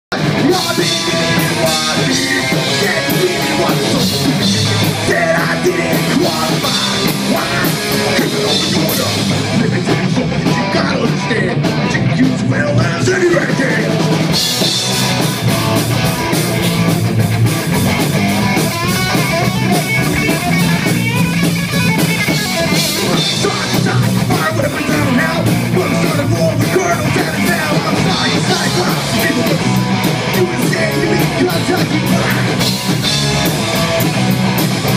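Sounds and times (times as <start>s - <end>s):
person singing into microphone: 0.1s - 14.0s, 22.7s - 32.7s
punk rock band playing live: 0.1s - 34.9s.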